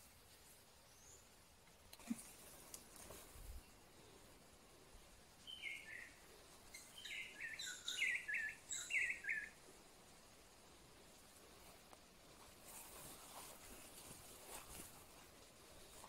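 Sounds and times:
bird calling: 5.4s - 9.6s
bird chirping: 5.4s - 9.6s.

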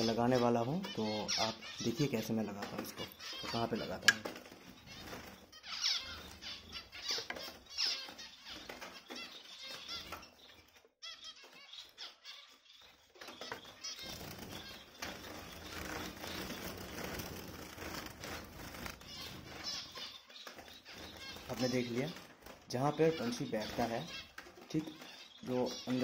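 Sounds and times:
finches fluttering wings: 12.9s - 26.0s.

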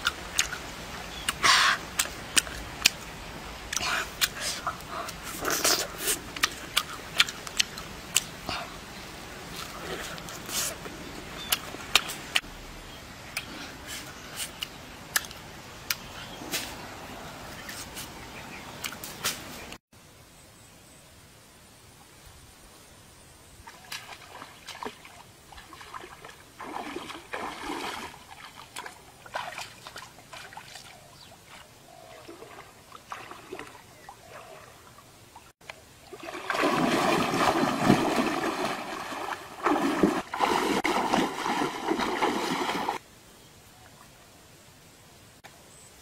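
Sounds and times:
shallow water splashing: 23.7s - 35.0s, 36.0s - 43.0s.

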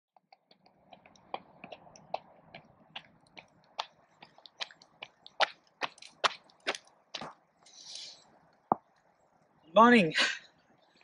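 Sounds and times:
jogging footsteps on asphalt: 0.2s - 7.4s.

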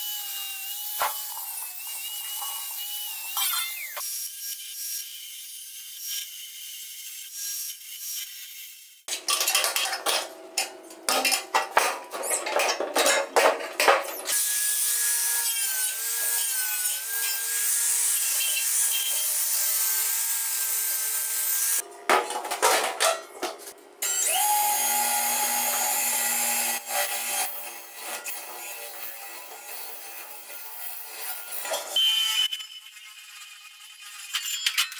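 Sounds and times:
angle grinder whining: 0.0s - 4.7s, 13.8s - 21.8s, 24.0s - 34.9s.

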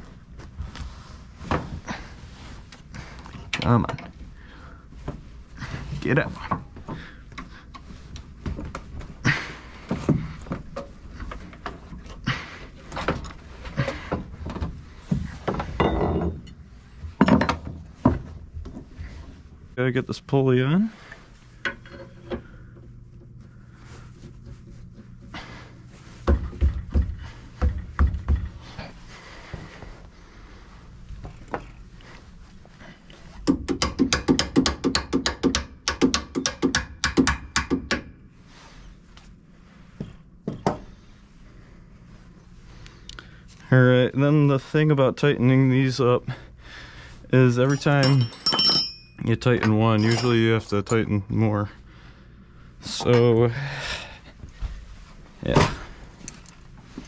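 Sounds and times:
hammer tapping on metal: 33.4s - 38.1s
metal parts scraping and knocking: 47.6s - 51.0s.

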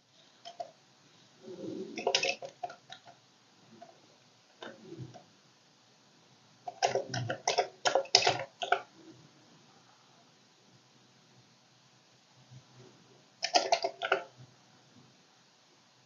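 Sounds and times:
computer keyboard keys clicking: 13.4s - 14.3s.

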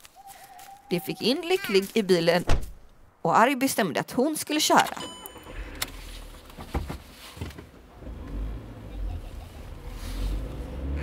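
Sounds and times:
car engine rumbling: 5.3s - 11.0s.

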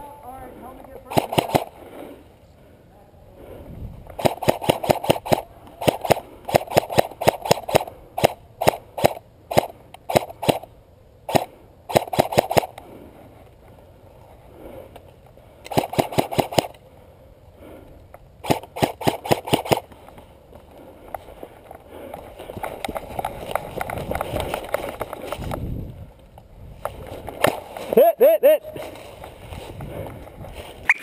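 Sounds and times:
airsoft rifle firing: 1.0s - 1.8s, 4.2s - 10.7s, 11.3s - 12.8s, 15.7s - 16.8s, 18.4s - 19.9s.

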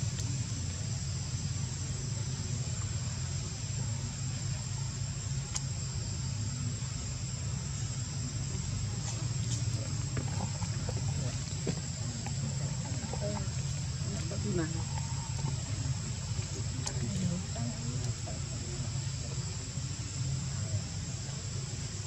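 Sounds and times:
faint clicks: 5.5s - 5.7s.

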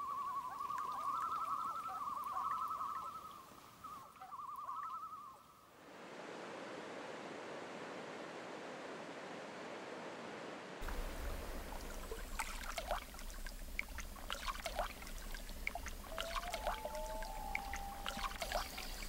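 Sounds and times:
loon tremolo call: 0.0s - 5.4s, 15.8s - 19.0s.

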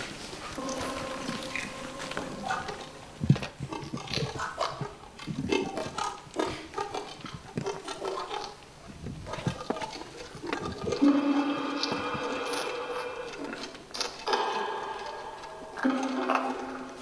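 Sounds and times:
steady held tone: 0.5s - 3.7s, 11.0s - 17.0s.

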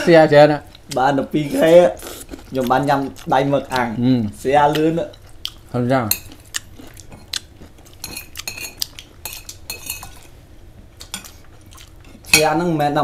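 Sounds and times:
cutlery clinking against dishes: 8.0s - 10.3s.

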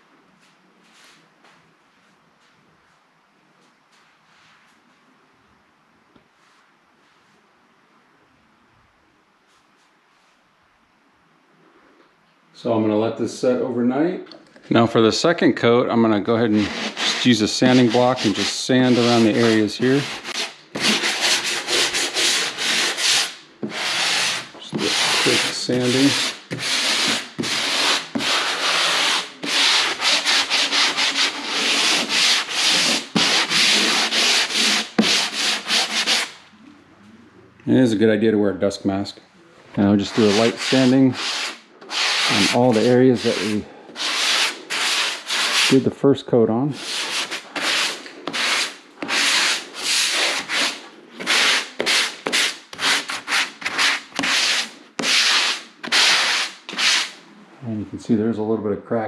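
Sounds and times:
sanding block scratching drywall: 16.5s - 36.4s, 40.0s - 45.9s, 46.7s - 57.2s.

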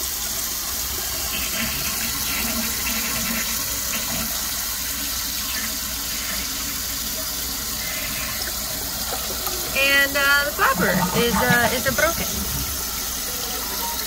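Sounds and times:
toilet flushing: 0.0s - 14.0s.

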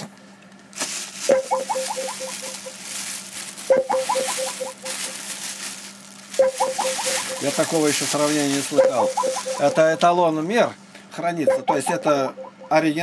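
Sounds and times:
plastic bag rustling: 0.7s - 10.5s
quick evenly spaced pulses: 1.3s - 2.7s, 3.7s - 4.9s, 6.4s - 10.1s, 11.5s - 13.0s.

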